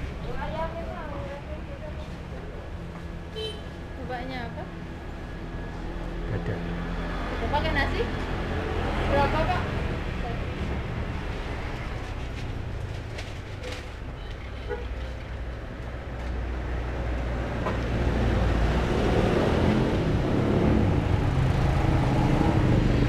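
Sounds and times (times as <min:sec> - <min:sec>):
light street traffic: 0:00.0 - 0:23.0.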